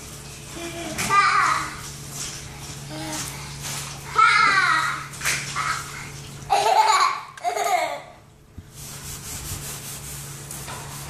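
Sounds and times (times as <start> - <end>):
faint rubbing rustle: 8.7 - 11.0.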